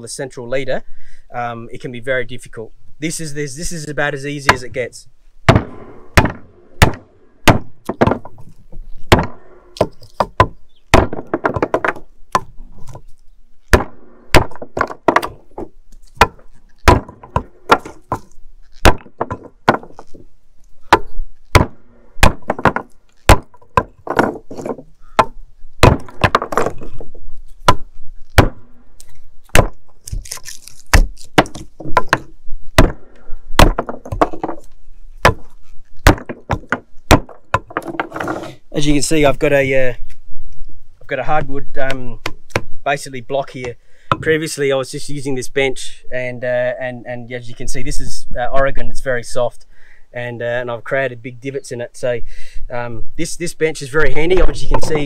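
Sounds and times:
hatchet chopping wood: 5.5s - 8.4s, 9.1s - 12.5s, 13.7s - 15.4s, 16.1s - 20.2s, 20.8s - 27.0s, 27.6s - 28.7s, 29.4s - 34.6s, 35.2s - 38.4s, 42.2s - 42.7s.

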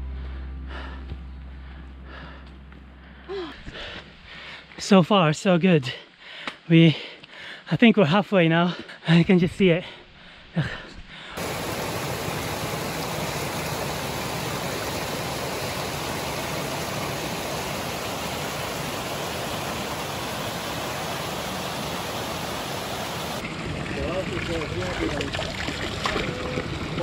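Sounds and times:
stream rushing over rocks: 11.4s - 26.4s.

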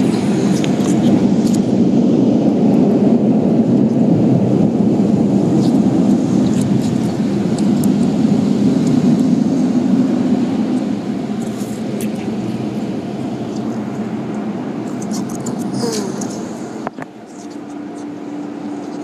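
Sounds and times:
sharp ticks and spatters: 5.4s - 9.4s, 10.8s - 17.8s.

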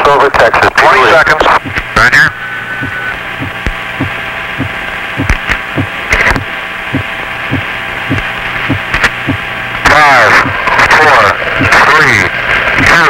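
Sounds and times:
radio hum: 0.0s - 13.0s
static clicks: 0.4s - 2.2s, 2.8s - 13.0s
low repeating thud: 2.8s - 9.4s.

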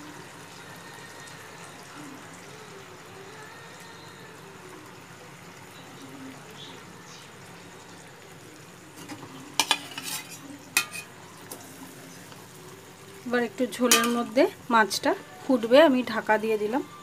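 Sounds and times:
fish gravy sizzling in a pan: 0.0s - 17.0s
metal lid and spatula clinking: 9.0s - 11.2s, 13.8s - 14.3s.

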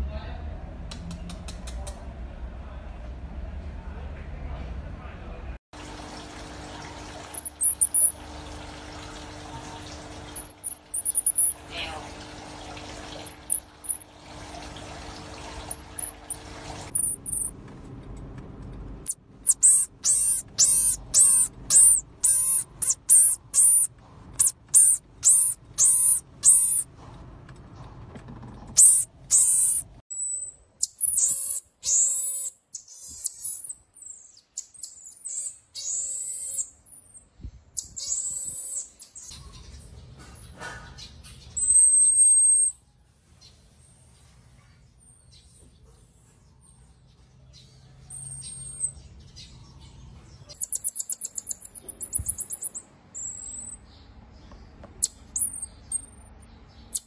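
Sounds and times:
marmosets chirping and trilling: 7.3s - 8.2s, 10.4s - 12.0s, 13.2s - 14.1s, 15.7s - 17.5s, 19.0s - 26.9s, 28.7s - 39.9s, 41.0s - 42.8s, 48.1s - 57.0s.

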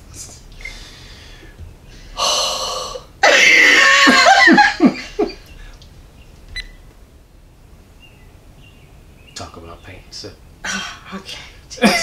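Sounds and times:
people laughing: 3.5s - 5.5s, 11.8s - 12.0s.

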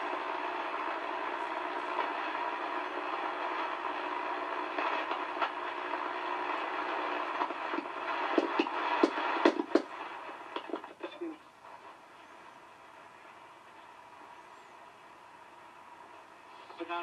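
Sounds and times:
radio static hiss: 0.0s - 17.0s
sharp pops and crackles: 4.6s - 11.2s.

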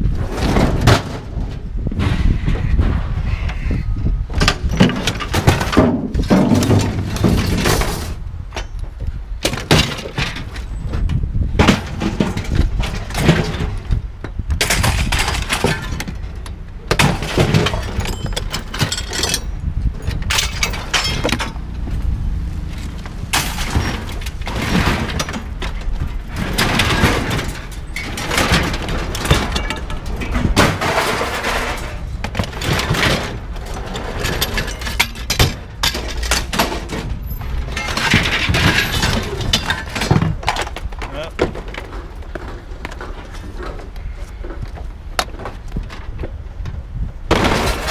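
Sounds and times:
scrap metal crashing onto pile: 0.2s - 3.1s, 4.4s - 8.2s, 11.6s - 13.9s, 14.6s - 19.5s, 20.2s - 21.6s, 23.1s - 43.8s, 47.3s - 47.9s
low rumble: 10.4s - 41.0s.

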